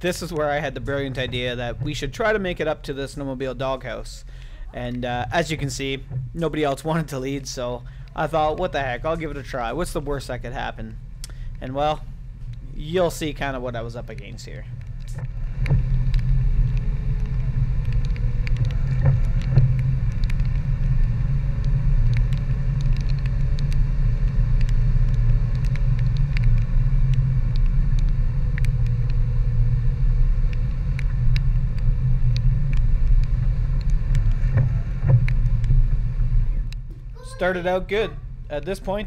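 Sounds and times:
engine and tyre rumble: 0.0 - 37.1.

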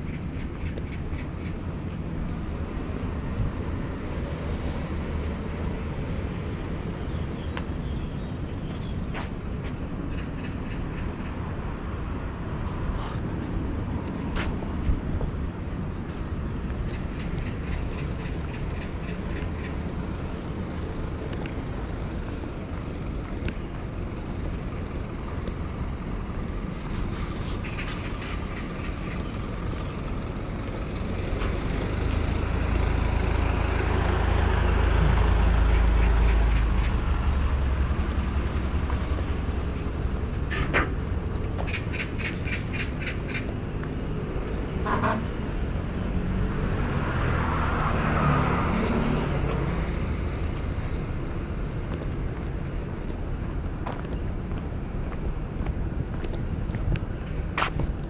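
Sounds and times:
street traffic: 0.0 - 58.0
heavy vehicle rumbling past: 15.4 - 53.9
light ticks like footsteps: 51.8 - 58.0.

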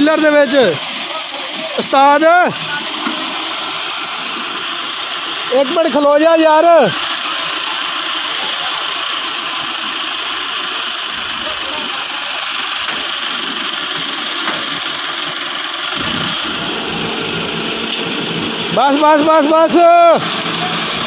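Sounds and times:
tractor diesel engine running: 0.0 - 21.0.

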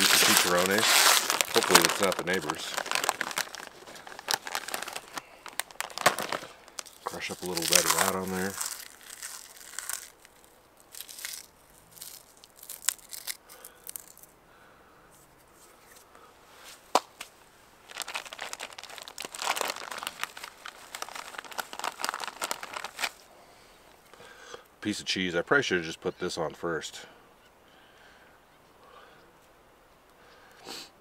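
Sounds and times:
plastic bag crinkling: 0.0 - 14.3, 17.8 - 23.3
pork rinds crunching: 0.0 - 14.3, 17.9 - 23.2
sharp crack: 0.0 - 14.3, 16.9 - 23.2.

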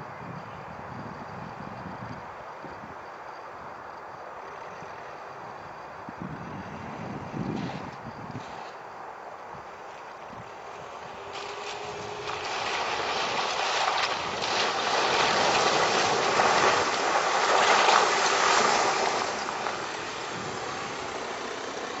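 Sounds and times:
van engine: 3.8 - 22.0
tyres splashing through water: 9.8 - 22.0.

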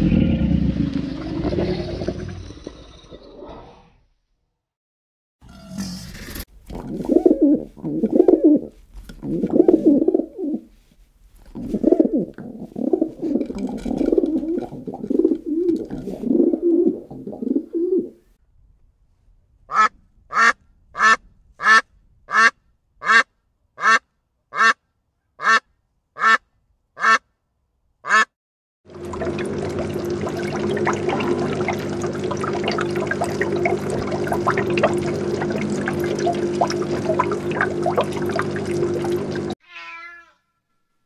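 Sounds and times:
duck quacking: 19.7 - 24.8, 25.4 - 26.4, 27.0 - 27.2, 28.0 - 28.3.

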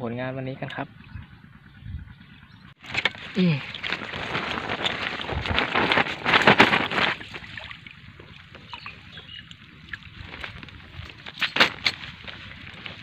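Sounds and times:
water splashing and sloshing: 2.8 - 13.0.

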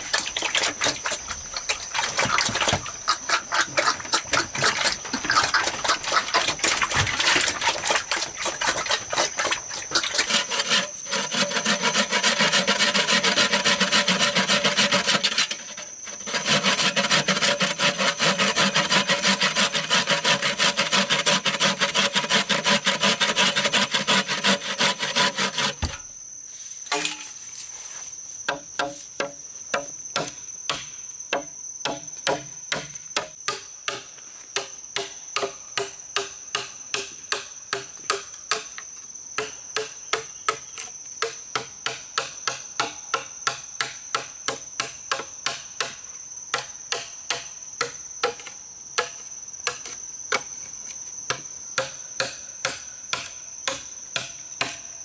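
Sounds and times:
hand-sawing bamboo: 0.0 - 26.0
machete chopping bamboo: 28.5 - 38.8.

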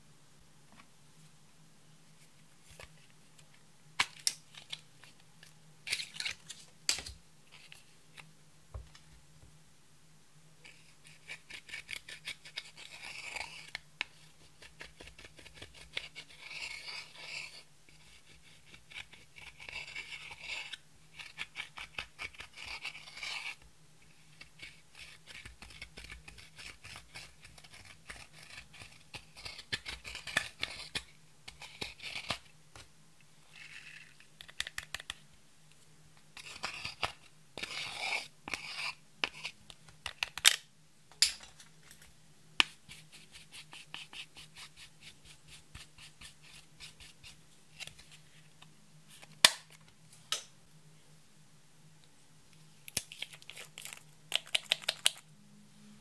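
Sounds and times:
dotting tool scratching eyeshadow: 10.6 - 32.9, 36.4 - 39.6, 42.6 - 48.2.

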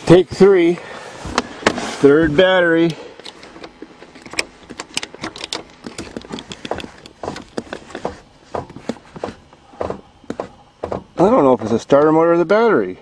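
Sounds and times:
car starter clicking: 2.8 - 11.3.

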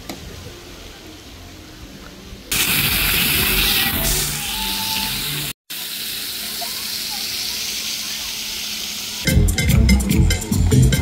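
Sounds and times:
loud rushing hiss: 2.5 - 9.3.

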